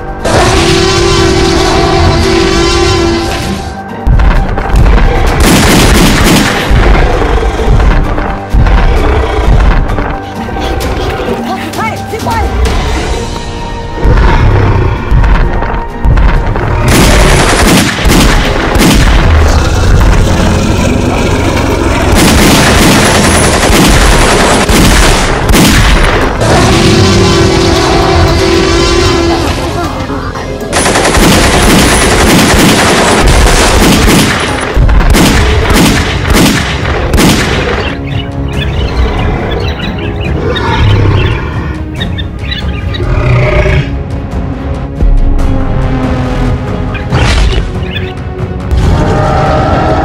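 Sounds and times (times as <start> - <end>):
action film music: 0.0 - 50.0
gunfire-like cracks and booms: 4.0 - 10.0, 15.1 - 20.4, 22.0 - 26.6, 30.8 - 38.0.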